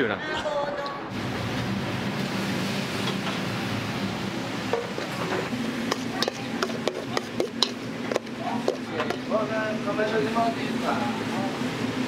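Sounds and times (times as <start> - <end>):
metal ladle clanking on wok: 5.9 - 9.2.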